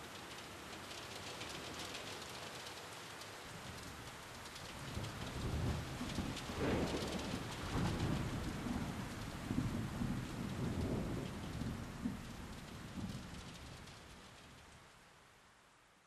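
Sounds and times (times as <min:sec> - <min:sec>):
steady rain: 0:00.0 - 0:16.0
rolling thunder rumble: 0:04.9 - 0:13.9.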